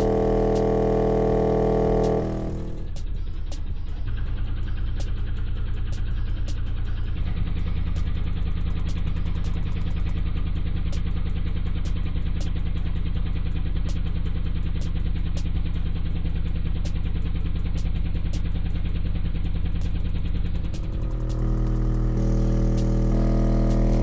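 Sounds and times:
subwoofer bass drone: 0:00.0 - 0:24.0.

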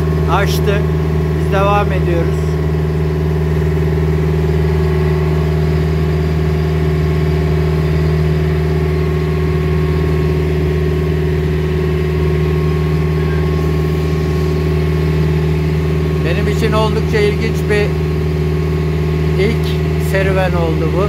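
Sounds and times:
motor boat engine droning: 0:00.0 - 0:21.0.

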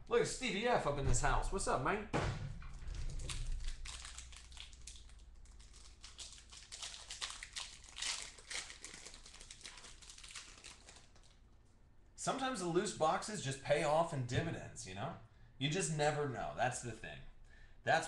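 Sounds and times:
wrapper crinkling and tearing: 0:02.9 - 0:11.4.

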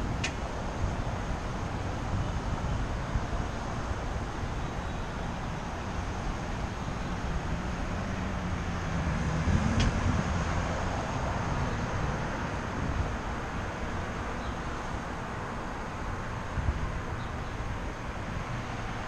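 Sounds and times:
road traffic noise: 0:00.0 - 0:19.0
vehicle passing: 0:08.0 - 0:12.1.

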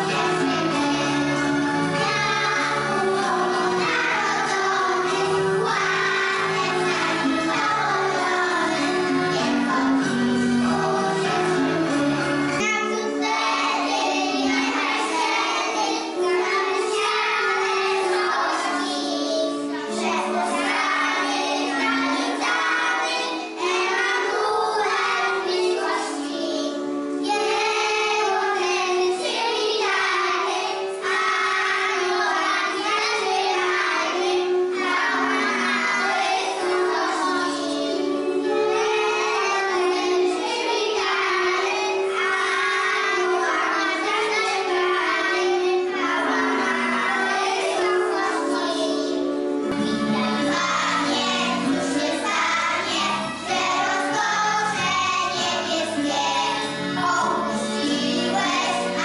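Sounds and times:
children singing a carol: 0:00.0 - 0:59.0.

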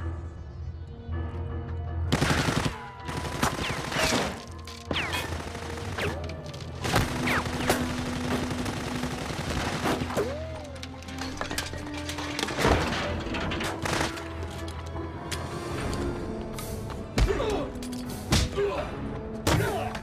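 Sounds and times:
rapid gunfire volleys: 0:02.1 - 0:10.2.

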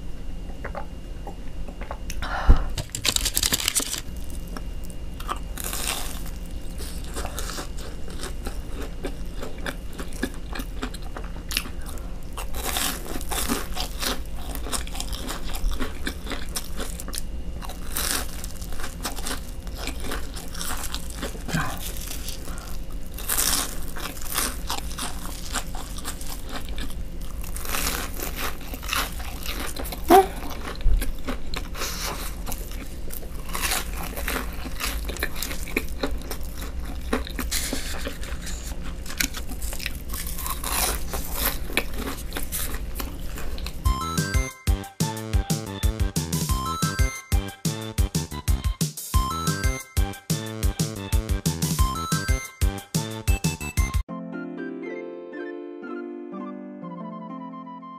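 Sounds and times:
crunchy food crunching: 0:02.8 - 0:43.9
wet chewing: 0:02.8 - 0:43.9.

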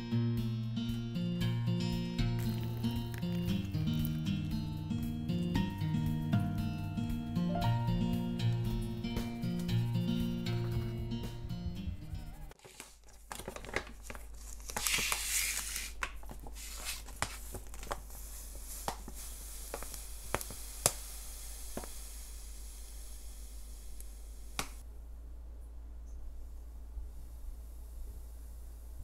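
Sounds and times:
rustling tear: 0:02.2 - 0:05.2, 0:12.6 - 0:21.0
faint steady hiss: 0:14.1 - 0:29.0.

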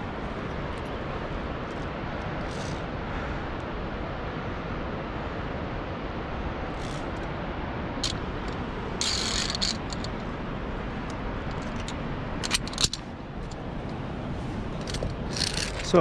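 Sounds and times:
steady rushing noise: 0:00.0 - 0:16.0
metal clips clinking on cable: 0:02.4 - 0:02.8, 0:08.0 - 0:10.2, 0:11.1 - 0:14.0, 0:14.8 - 0:16.0.

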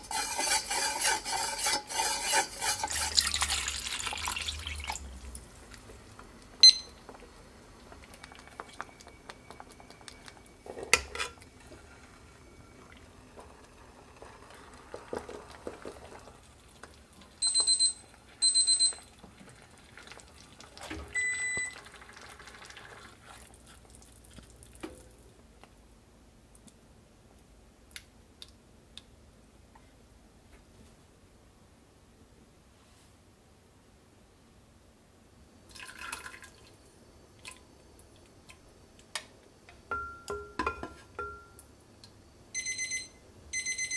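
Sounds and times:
short electronic beeps: 0:06.6 - 0:07.0, 0:17.4 - 0:19.0
pots and utensils clinking: 0:10.6 - 0:11.5, 0:39.9 - 0:41.6.

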